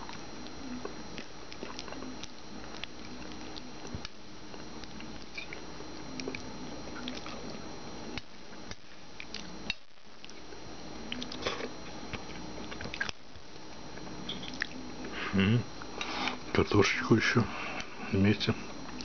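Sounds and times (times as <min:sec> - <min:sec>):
person chewing food: 0:00.0 - 0:15.2
faint steady hum: 0:00.0 - 0:19.0.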